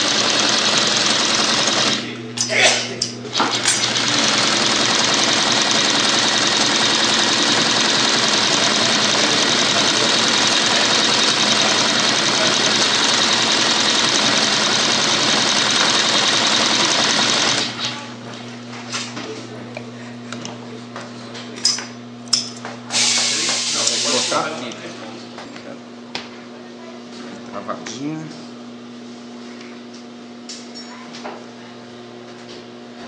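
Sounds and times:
sewing machine stitching: 0.0 - 2.1, 3.3 - 18.0.

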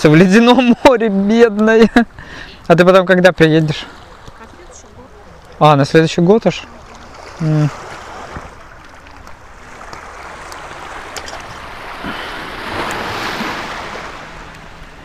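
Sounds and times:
waves on a pebble beach: 3.6 - 15.0.

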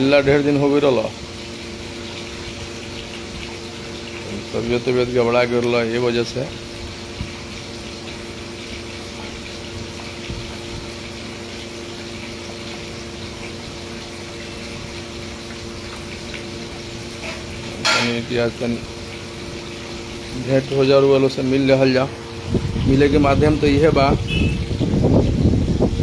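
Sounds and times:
motor humming: 0.0 - 26.0
person's voice: 17.9 - 18.8, 20.3 - 22.1, 22.8 - 24.3.

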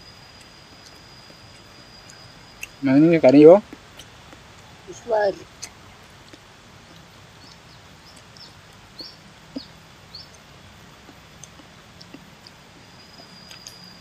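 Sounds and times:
high insect whine: 0.0 - 5.6, 11.6 - 14.0
small bird chirping: 0.1 - 14.0
soft eating clicks: 5.4 - 12.6.

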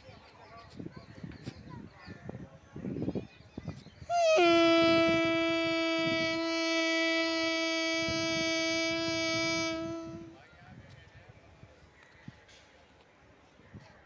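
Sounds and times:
man imitating train horn: 4.1 - 10.4.

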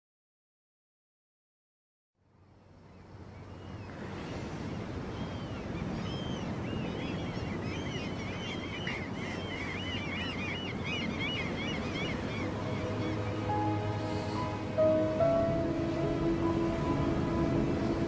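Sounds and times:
flock of birds chirping: 2.9 - 18.0
sea surf washing: 3.7 - 18.0.

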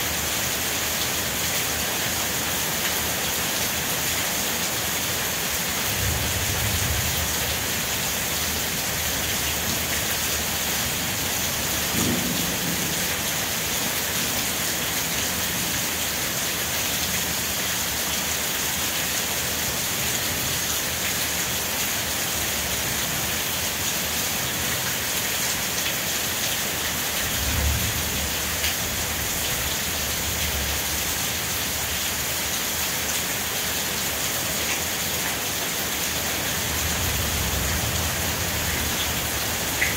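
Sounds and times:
thunder rumbling: 11.9 - 13.0
rain hissing: 18.3 - 39.9.

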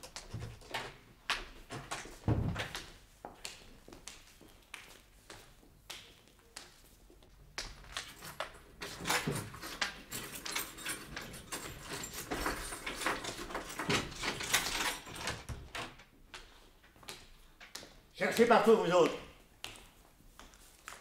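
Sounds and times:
clatter of knocks and bangs: 8.8 - 16.0.

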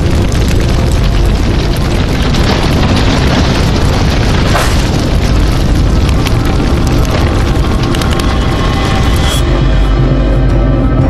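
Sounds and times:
booming rumbling sound effects: 0.0 - 11.0
background music: 5.8 - 11.0.

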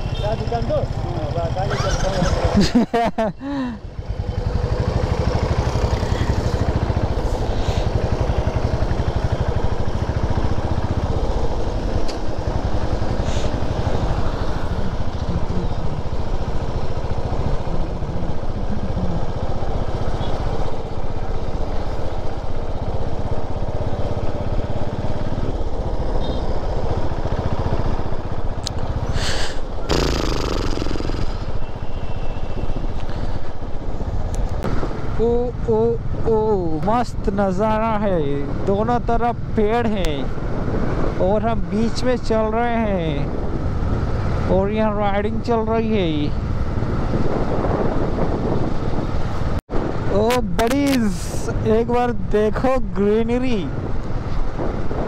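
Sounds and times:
motorcycle engine running: 0.0 - 2.7, 3.7 - 34.9
road and wind noise: 0.0 - 55.0.

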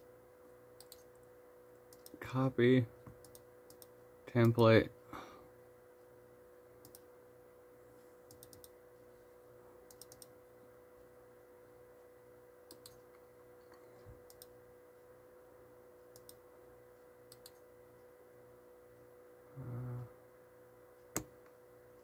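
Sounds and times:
faint electrical hum: 0.0 - 22.0
laptop clicking: 8.3 - 8.7, 9.9 - 10.3, 12.7 - 13.0.

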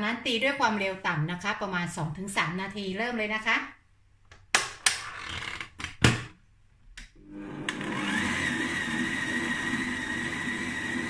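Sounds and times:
stand mixer motor whining: 7.2 - 11.0.

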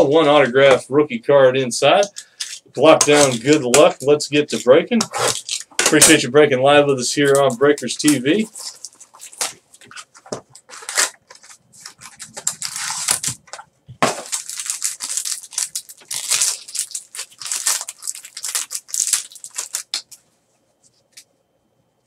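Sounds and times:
cellophane crinkling and tearing: 2.4 - 6.2, 7.2 - 20.2.

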